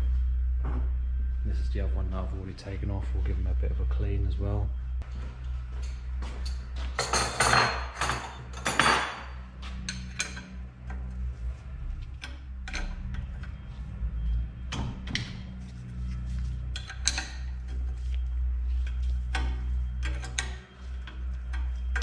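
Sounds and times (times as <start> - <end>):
metal tool clinking and scraping: 15.7 - 22.0.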